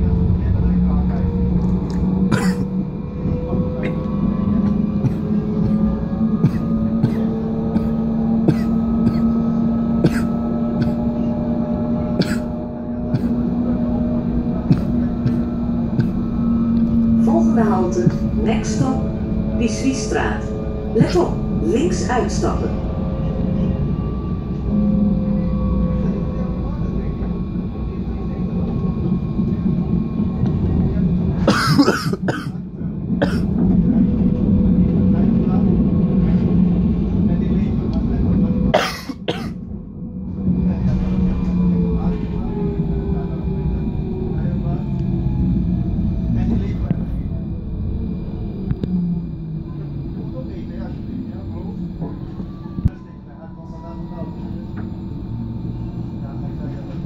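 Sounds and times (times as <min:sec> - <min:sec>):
tram drive hum and whine: 0:00.0 - 0:57.0
person coughing: 0:02.3 - 0:02.7, 0:06.4 - 0:09.4, 0:10.0 - 0:11.0, 0:12.2 - 0:12.5, 0:31.5 - 0:32.6, 0:33.2 - 0:33.5, 0:38.8 - 0:39.6
faint steady whine: 0:39.6 - 0:57.0.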